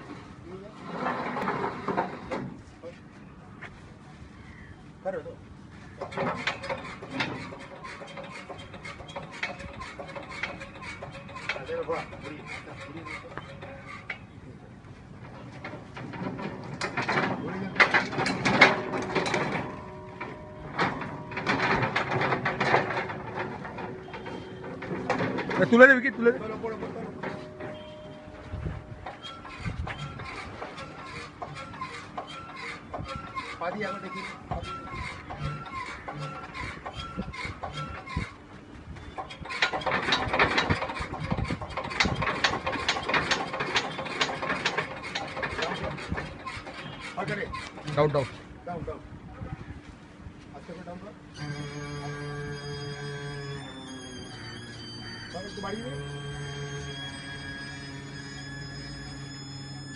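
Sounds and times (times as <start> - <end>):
pallet truck rolling on concrete: 0.0 - 2.6, 6.0 - 14.3, 15.1 - 38.4, 39.0 - 48.4, 51.4 - 59.9
foot pump clicking and clanking: 6.0 - 14.3, 15.2 - 38.4, 39.0 - 49.0, 51.4 - 59.9
gas cylinder cage rattling: 15.2 - 38.4, 39.1 - 48.3.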